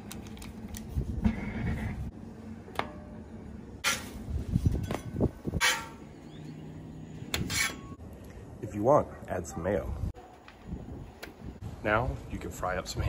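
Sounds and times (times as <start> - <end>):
metal spatula scraping griddle: 5.6 - 6.0, 7.4 - 8.0.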